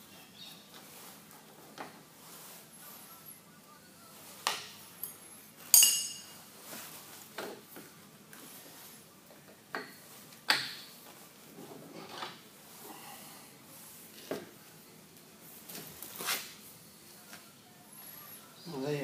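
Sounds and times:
metal clinks and knocks: 5.0s - 6.4s.

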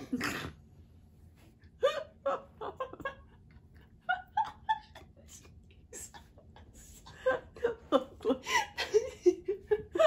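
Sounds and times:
women laughing: 1.8s - 10.0s.

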